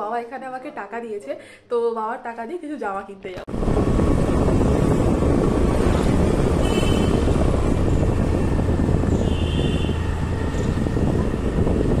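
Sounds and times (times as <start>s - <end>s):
motorbike engine: 3.5s - 12.0s
wind buffeting microphone: 3.5s - 12.0s.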